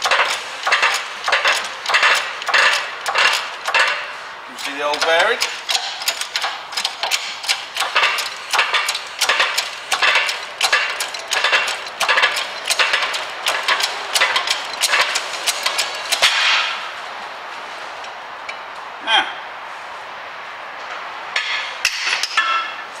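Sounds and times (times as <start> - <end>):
metal parts clicking and scraping: 0.0 - 16.7.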